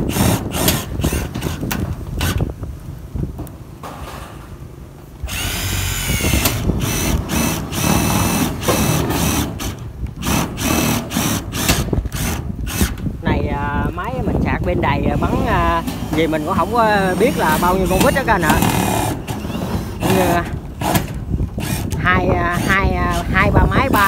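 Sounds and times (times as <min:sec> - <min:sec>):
power drill driving screws into metal: 0:00.0 - 0:02.5, 0:05.2 - 0:13.1, 0:15.2 - 0:24.0.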